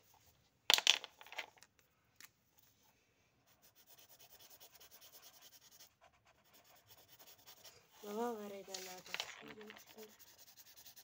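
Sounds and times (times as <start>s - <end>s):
marker scribbling on paper: 3.5s - 11.0s.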